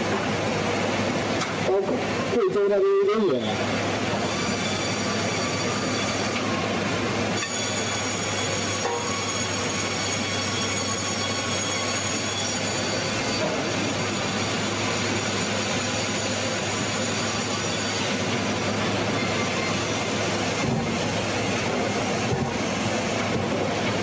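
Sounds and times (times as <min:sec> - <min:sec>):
band saw and machinery running: 0:00.0 - 0:24.0.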